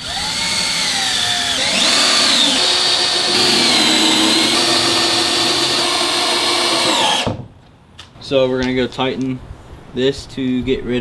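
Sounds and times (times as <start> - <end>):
cordless drill whining: 0.0 - 7.4.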